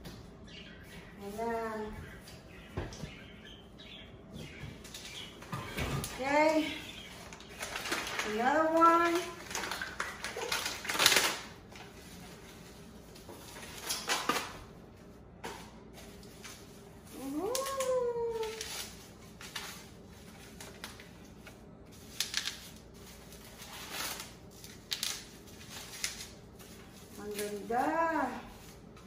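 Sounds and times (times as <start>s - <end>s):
plastic rustling: 6.1s - 14.7s, 15.9s - 29.0s.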